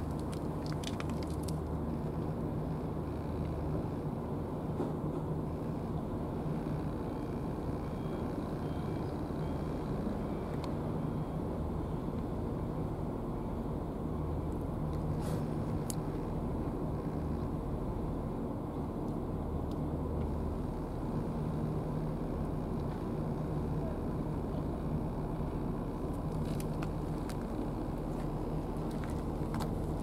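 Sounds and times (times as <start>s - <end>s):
engine droning: 0.0s - 30.0s.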